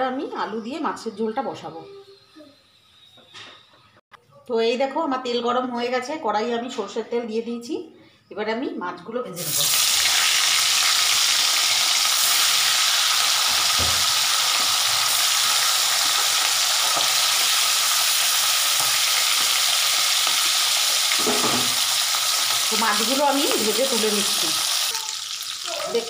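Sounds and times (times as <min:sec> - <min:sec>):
fish sizzling in hot oil: 0:09.4 - 0:26.0.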